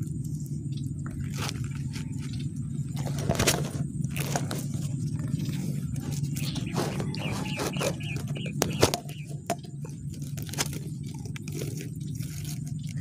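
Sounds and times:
fishing net rustling and scraping: 1.1s - 13.0s.

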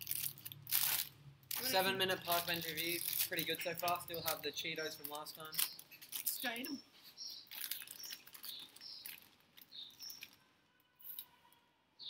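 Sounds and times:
snack bag crackling: 0.0s - 6.6s, 7.4s - 10.4s
cheese puffs being eaten: 7.4s - 10.4s.

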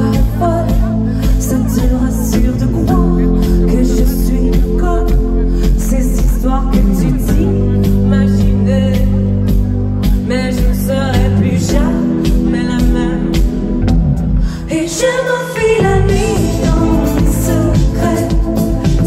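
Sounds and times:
steady drum beat: 0.0s - 14.7s, 15.8s - 19.0s
woman singing into microphone: 0.0s - 19.0s.

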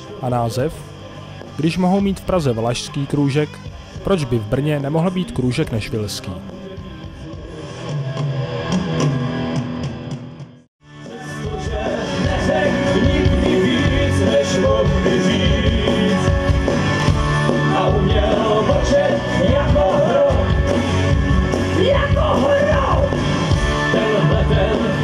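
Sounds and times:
live country-rock band playing: 11.0s - 25.0s.

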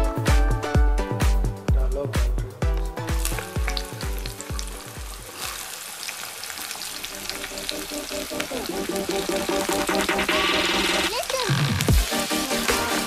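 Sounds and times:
background music with steady beat: 0.0s - 5.3s, 7.5s - 11.2s, 11.8s - 13.0s
onions sizzling in hot oil: 3.0s - 13.0s.

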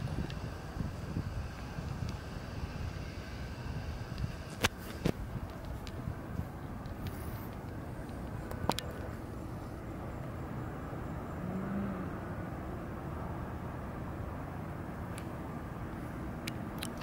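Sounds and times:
low outdoor rumble: 0.0s - 17.0s.

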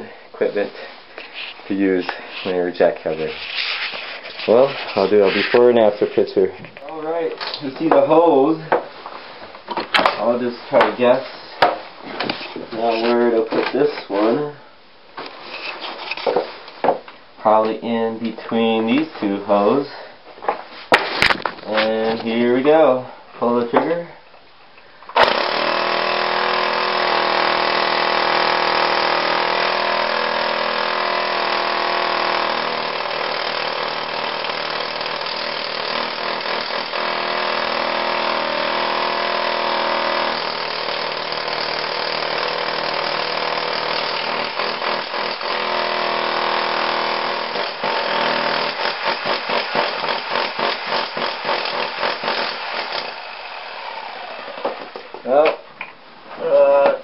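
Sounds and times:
jackhammer breaking concrete: 25.2s - 55.0s.

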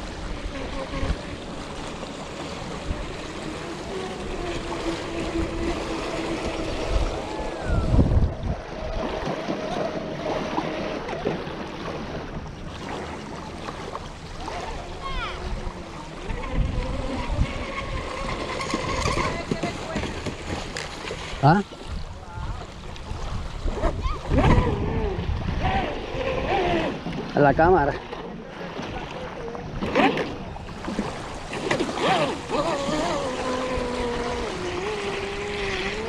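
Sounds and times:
electric boat motor whining: 0.0s - 21.4s, 23.6s - 28.2s, 29.8s - 36.0s
small waves lapping: 0.0s - 36.0s
wind hitting microphone: 3.9s - 9.3s, 15.2s - 20.6s, 21.9s - 27.0s.

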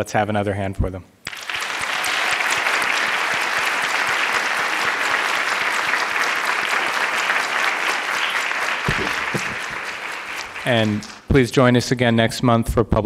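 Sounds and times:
audience applauding: 1.3s - 11.4s.

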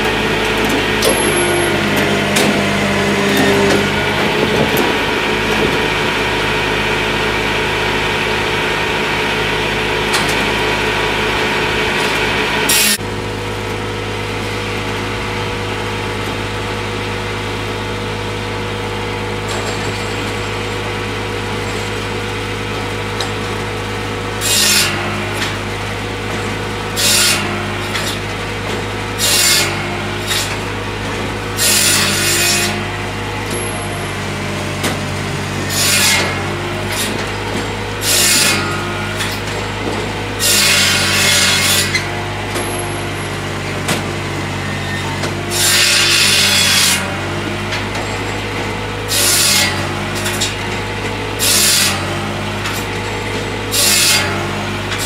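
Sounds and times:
wood scraping and grinding: 0.0s - 7.8s
saw cutting wood: 0.0s - 13.1s, 13.9s - 55.0s
tractor diesel engine running: 0.0s - 51.4s, 52.0s - 55.0s.

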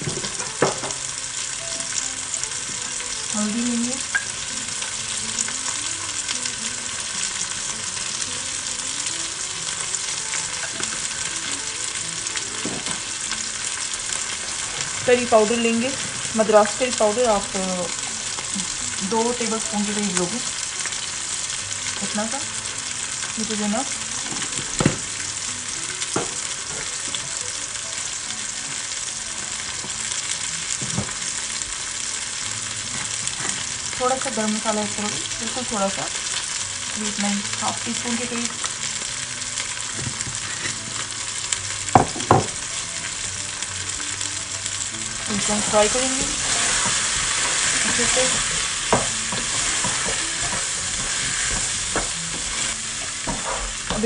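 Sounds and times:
food frying in hot oil: 0.0s - 54.0s.

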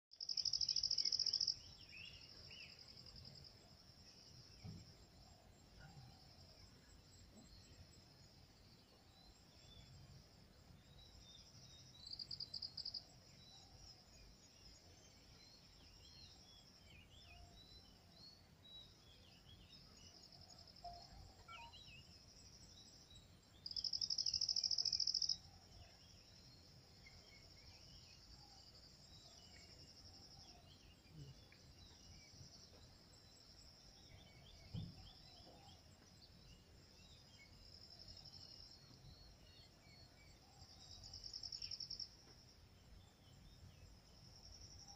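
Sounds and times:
insects trilling: 0.2s - 3.4s, 19.2s - 35.3s
rapid pulsed insect buzzes: 0.2s - 18.0s, 18.6s - 35.3s, 36.2s - 44.9s
faint bird chirps: 0.2s - 44.9s
low thump: 4.6s - 5.0s, 34.7s - 35.1s.

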